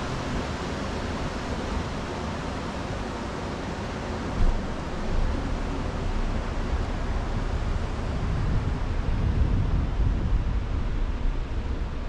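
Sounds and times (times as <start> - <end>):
water rushing along hull: 0.0 - 12.0
wind rumbling on microphone: 4.0 - 12.0.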